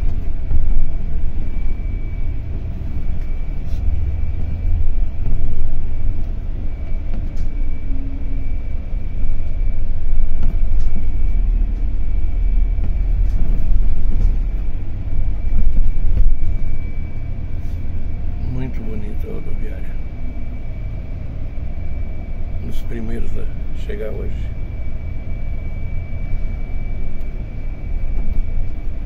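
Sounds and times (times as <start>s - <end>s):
bus engine low rumble: 0.0s - 29.0s
faint high whine: 0.0s - 29.0s.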